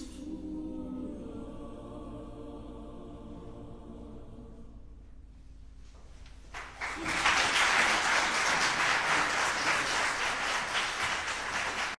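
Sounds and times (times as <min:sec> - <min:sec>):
choir singing: 0:00.0 - 0:05.0
audience applause: 0:06.5 - 0:12.0.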